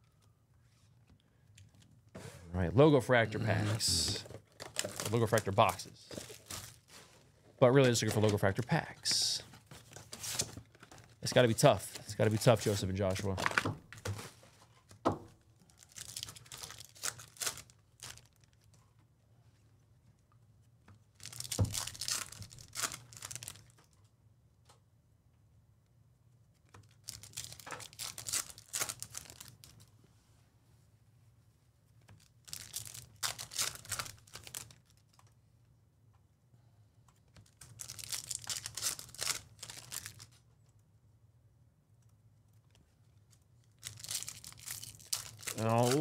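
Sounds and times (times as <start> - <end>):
foil wrappers crinkling and tearing: 3.9 - 7.0, 15.6 - 18.7, 21.2 - 23.9, 26.8 - 29.9, 32.2 - 35.2, 37.3 - 40.4, 43.3 - 46.0.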